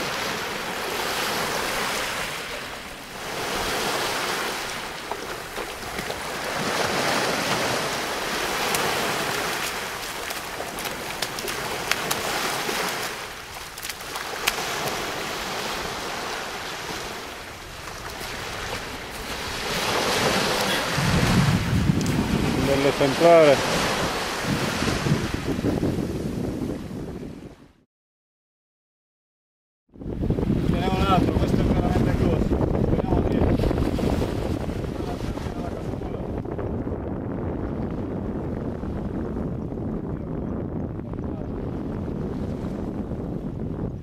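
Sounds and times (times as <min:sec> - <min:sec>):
sea surf washing on beach: 0:00.0 - 0:27.2, 0:30.1 - 0:36.4.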